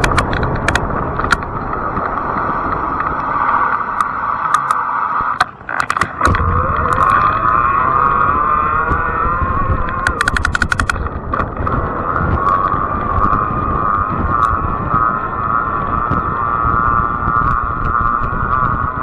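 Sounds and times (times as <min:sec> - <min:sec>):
sharp clicks: 0:00.0 - 0:08.2, 0:08.8 - 0:13.4
electric bike tyres humming: 0:00.0 - 0:19.0
wind on microphone: 0:00.0 - 0:19.0.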